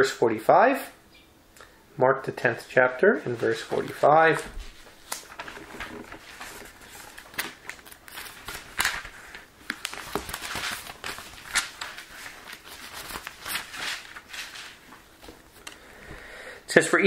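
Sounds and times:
thin paper pages rustling: 3.2s - 15.8s.

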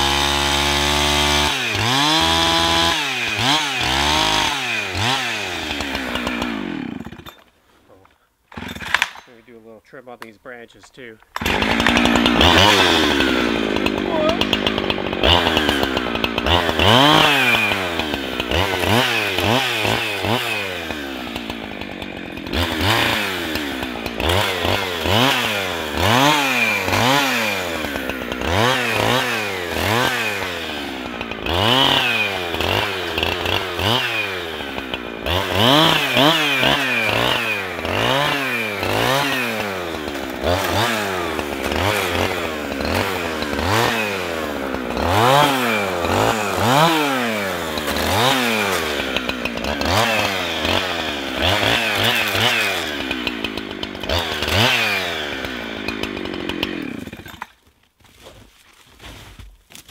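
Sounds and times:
chainsaw revving: 0.0s - 9.4s, 10.6s - 57.7s.

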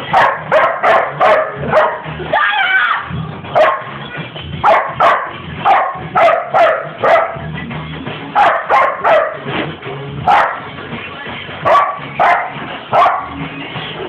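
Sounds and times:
background song: 0.0s - 14.0s
dog barking: 0.1s - 2.1s, 3.6s - 3.9s, 4.6s - 7.4s, 8.4s - 9.4s, 10.3s - 10.7s, 11.7s - 13.4s.

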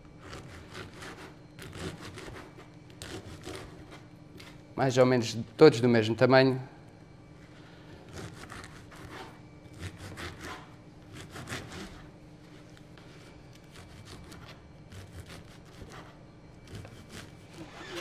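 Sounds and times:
knife cutting dry bread: 13.2s - 18.0s.

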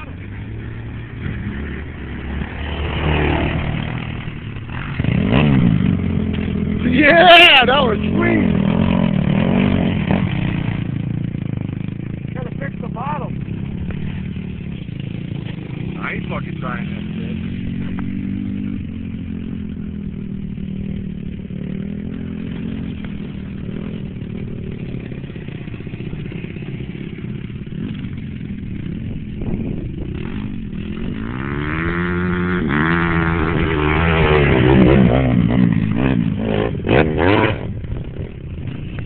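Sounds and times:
off-road engine revving hard: 0.0s - 28.6s, 29.2s - 39.0s
distant atv engine running: 0.0s - 39.0s.

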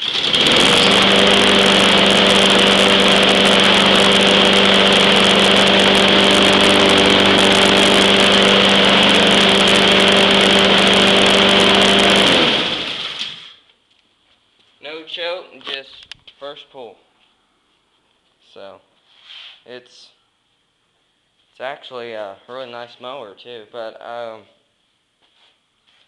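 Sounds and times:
high whine: 0.0s - 13.5s
lawn mower engine running: 0.0s - 13.6s.

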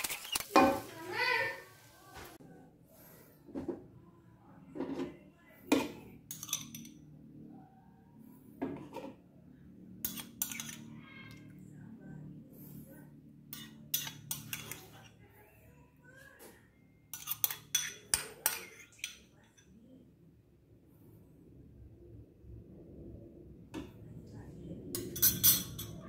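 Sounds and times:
metal spoon clinking on glass bowl: 6.3s - 7.0s, 10.0s - 10.9s, 17.1s - 19.7s, 25.0s - 26.0s
faint low hum: 19.2s - 26.0s.

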